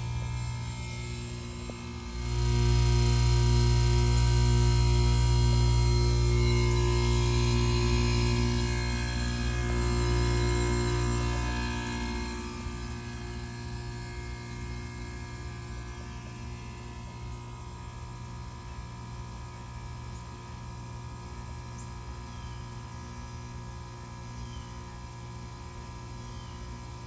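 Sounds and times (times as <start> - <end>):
steady tones: 0.0 - 17.5
heat pump humming: 0.0 - 22.2.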